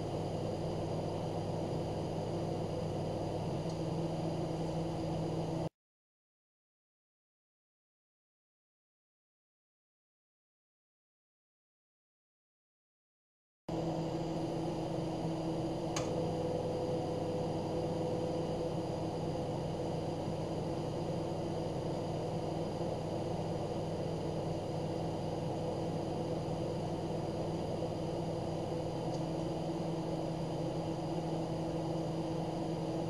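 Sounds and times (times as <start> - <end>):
fan noise: 0.0 - 5.7, 13.7 - 33.0
microwave oven humming: 0.0 - 5.7, 13.7 - 33.0.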